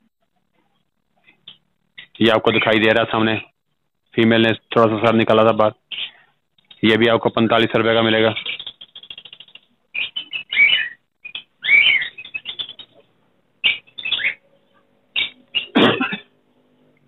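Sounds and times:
lovebirds chirping: 5.8s - 15.9s.

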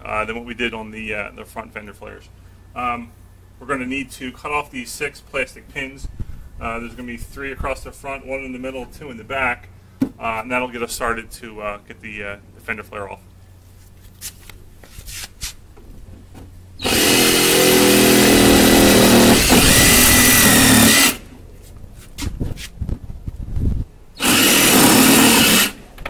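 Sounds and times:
reciprocating saw cutting plastic: 16.8s - 21.3s, 24.2s - 26.0s.

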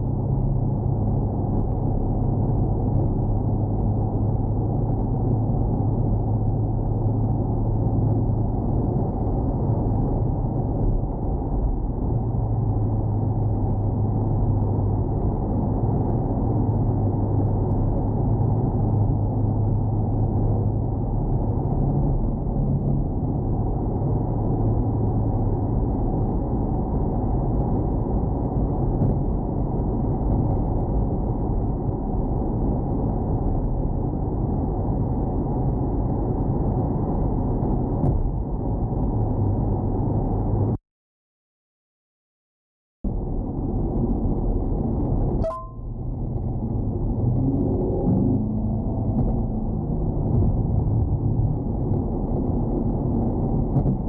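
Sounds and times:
muffled car engine drone: 0.0s - 40.8s, 43.1s - 54.0s
tyre and road noise: 43.1s - 54.0s.

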